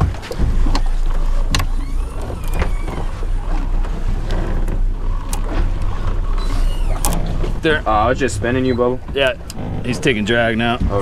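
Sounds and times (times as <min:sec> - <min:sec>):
boat engines rumbling: 0:00.0 - 0:11.0
water noise: 0:00.0 - 0:11.0
wind: 0:00.0 - 0:11.0
fishing reel clicks and whines: 0:00.7 - 0:03.6, 0:06.2 - 0:07.3.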